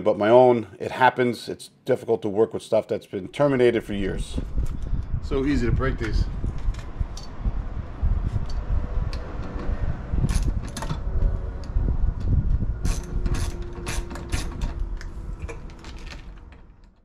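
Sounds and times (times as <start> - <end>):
steady low rumble: 3.6 - 17.0.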